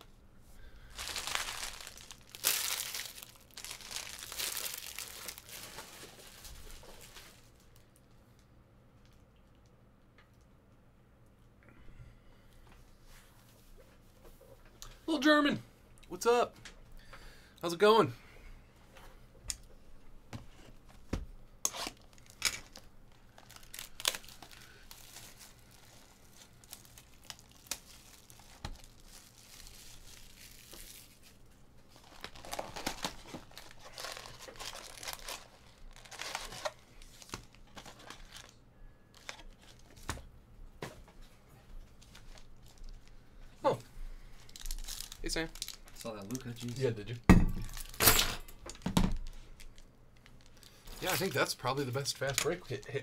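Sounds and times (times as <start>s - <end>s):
wrappers tearing and crinkling: 0.8s - 7.9s, 21.6s - 40.1s, 42.0s - 47.1s, 49.2s - 51.4s.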